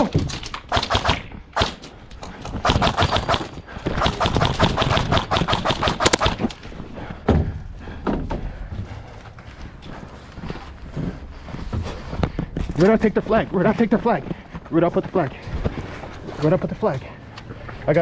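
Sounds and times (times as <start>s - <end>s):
airsoft rifle firing bursts: 0.7s - 1.8s, 2.6s - 6.5s.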